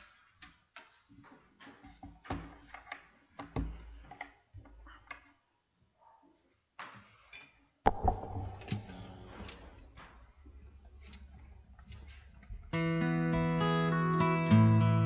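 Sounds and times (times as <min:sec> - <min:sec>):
knocks and clicks of handling: 0:00.4 - 0:05.4.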